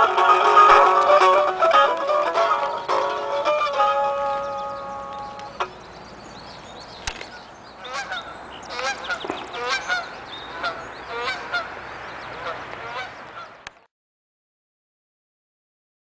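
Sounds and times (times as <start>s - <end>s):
geese honking: 0.0s - 5.8s, 7.2s - 13.7s
single click: 7.0s - 7.4s.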